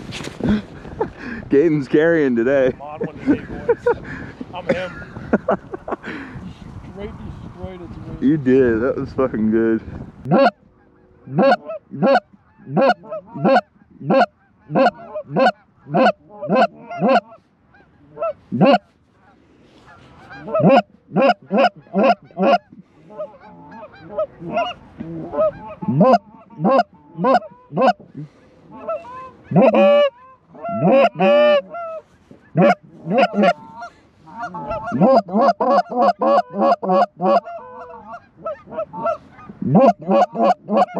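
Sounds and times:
goose calls honking: 10.2s - 40.9s.

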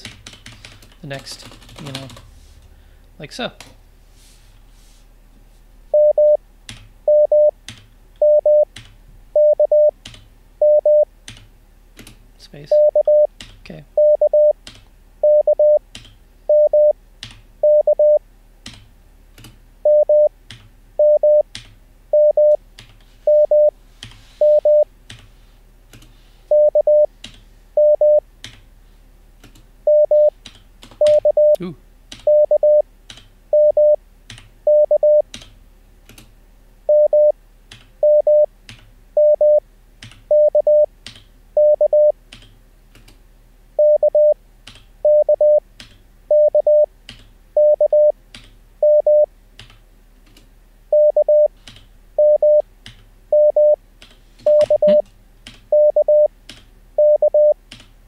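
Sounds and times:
computer keyboard keystrokes: 0.0s - 2.3s, 7.7s - 7.9s, 8.7s - 9.0s, 9.7s - 10.3s, 11.3s - 12.2s, 13.1s - 13.6s, 14.6s - 14.9s, 15.9s - 16.2s, 16.8s - 17.4s, 18.6s - 19.6s, 21.4s - 21.8s, 29.4s - 32.5s, 33.1s - 33.3s, 34.3s - 36.3s, 37.7s - 41.3s, 42.0s - 43.2s, 44.2s - 46.0s, 48.3s - 48.6s, 51.3s - 53.1s, 54.0s - 56.7s, 57.3s - 58.0s
morse code tone: 5.9s - 6.4s, 7.1s - 7.5s, 8.2s - 8.7s, 9.4s - 9.9s, 10.6s - 11.1s, 12.7s - 13.3s, 14.0s - 14.6s, 15.2s - 15.8s, 16.5s - 17.0s, 17.6s - 18.2s, 19.8s - 20.3s, 21.0s - 21.4s, 22.2s - 22.6s, 23.3s - 23.7s, 24.4s - 24.9s, 26.5s - 27.1s, 27.8s - 28.2s, 29.9s - 30.3s, 31.0s - 31.6s, 32.3s - 32.8s, 33.5s - 34.0s, 34.7s - 35.2s, 36.9s - 37.3s, 38.0s - 38.5s, 39.2s - 39.6s, 40.3s - 40.9s, 41.6s - 42.1s, 43.8s - 44.4s, 45.1s - 45.6s, 46.3s - 46.9s, 47.6s - 48.1s, 48.8s - 49.3s, 50.9s - 51.5s, 52.2s - 52.6s, 53.3s - 53.8s, 54.4s - 55.0s, 55.7s - 56.3s, 57.0s - 57.6s.

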